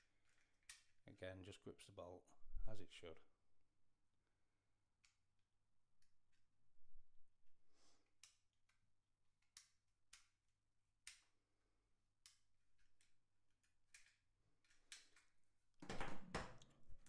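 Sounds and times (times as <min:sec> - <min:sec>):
small metallic lock clicks: 0:12.2 - 0:15.4.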